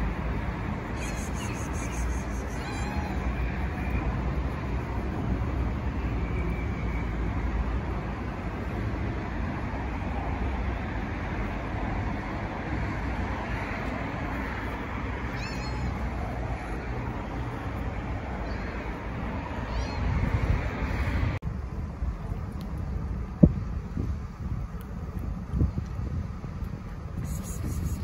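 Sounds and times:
cat meowing: 1.0 - 4.0, 15.2 - 16.8, 18.3 - 18.9, 19.6 - 20.2.

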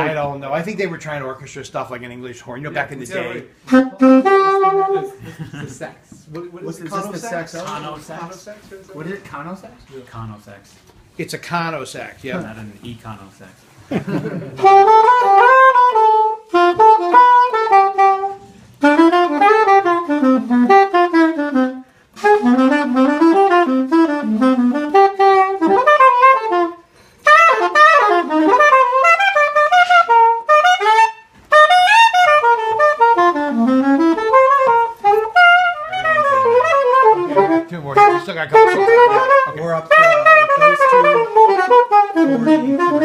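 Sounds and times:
saxophone playing jazz runs: 2.7 - 5.2, 6.9 - 8.0, 14.6 - 43.0.

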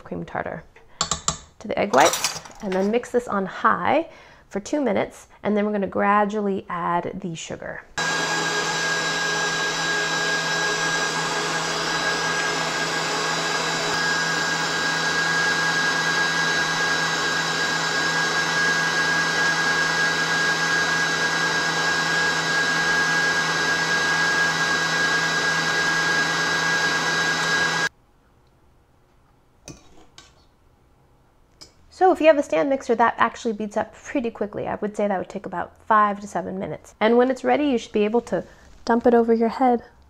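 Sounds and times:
stand mixer motor whine: 8.0 - 27.9.

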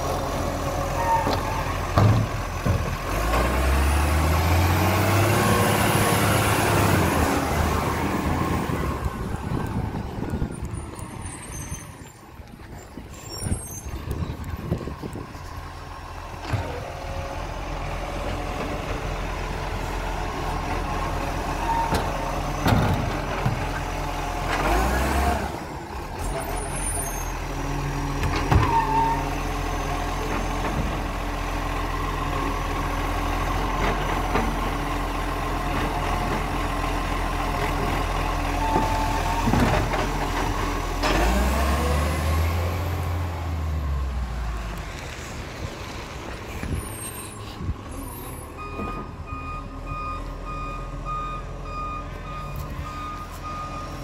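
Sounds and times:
bins clunking and banging: 1.2 - 3.5.

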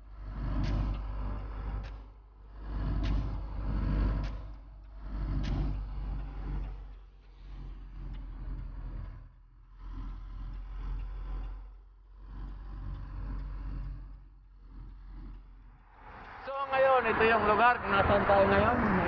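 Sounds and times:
car engine and road rumble: 0.0 - 19.0
light clicks: 2.8 - 16.4.

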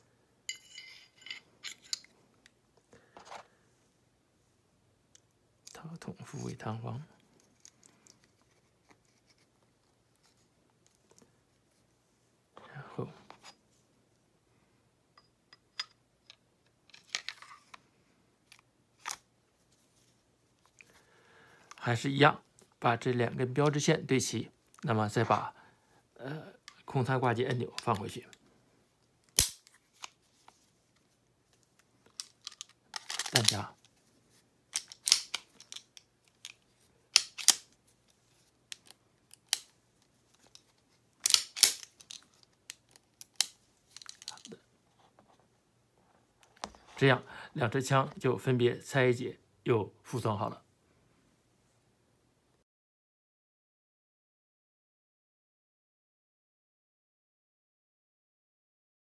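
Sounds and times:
pistol slide metal clicks: 29.3 - 30.1, 34.8 - 35.8, 37.2 - 37.7, 41.2 - 41.9.

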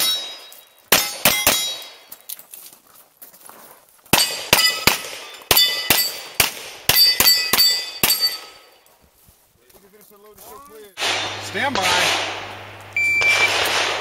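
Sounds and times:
pistol shots: 0.0 - 2.0, 4.1 - 8.5, 11.0 - 14.0
steel targets clanging: 0.0 - 2.0, 4.2 - 8.8, 11.0 - 14.0.

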